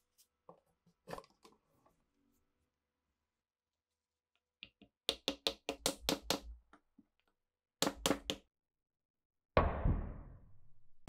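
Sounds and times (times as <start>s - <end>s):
sudden loud bang: 9.6s - 10.8s.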